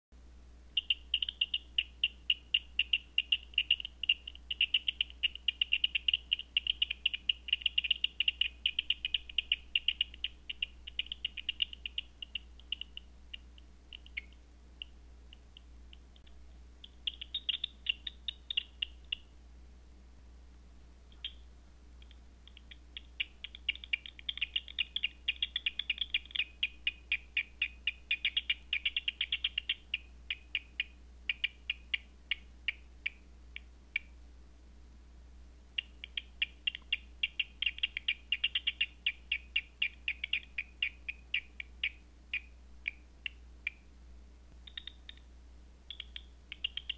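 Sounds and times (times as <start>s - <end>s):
bat echolocation clicks: 2.8s - 18.7s, 45.9s - 46.9s.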